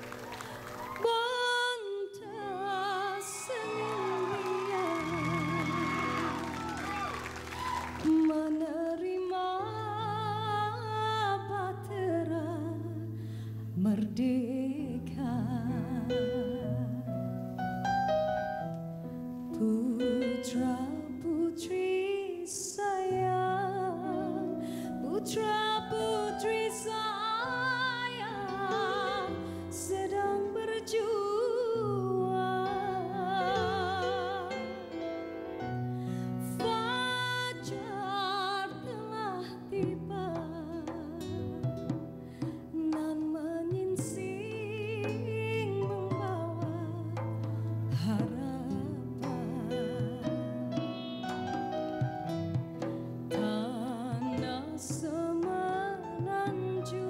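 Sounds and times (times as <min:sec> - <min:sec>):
woman singing with vibrato: 0:00.8 - 0:06.8, 0:07.6 - 0:13.1, 0:19.5 - 0:35.0, 0:36.4 - 0:41.6, 0:42.7 - 0:47.2, 0:48.0 - 0:50.6, 0:53.3 - 0:57.0.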